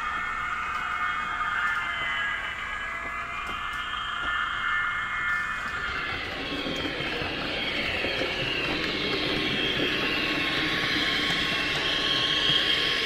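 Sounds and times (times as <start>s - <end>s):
model train running on track: 0.0s - 13.0s.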